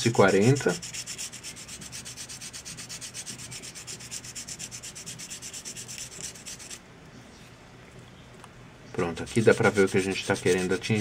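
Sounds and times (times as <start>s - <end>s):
sandpaper rubbing plastic: 0.4s - 6.8s, 9.2s - 11.0s.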